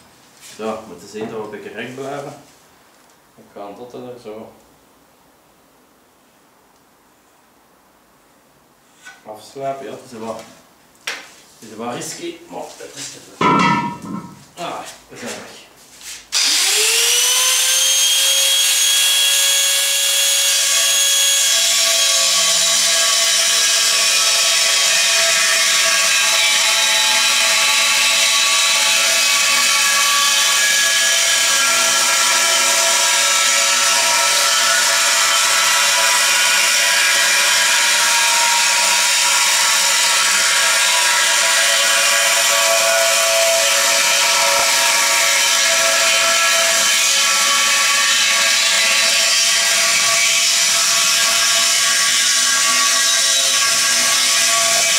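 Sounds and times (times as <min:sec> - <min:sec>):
angle grinder cutting steel: 0:16.3 - 0:54.9.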